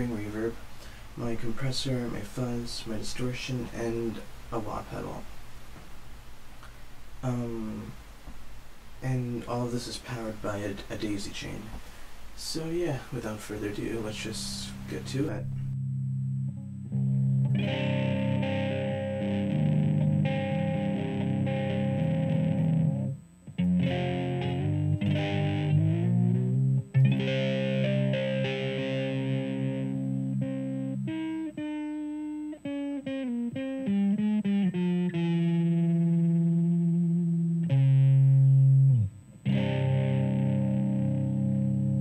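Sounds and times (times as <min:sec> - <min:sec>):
distorted electric guitar riffs: 0:14.3 - 0:42.0.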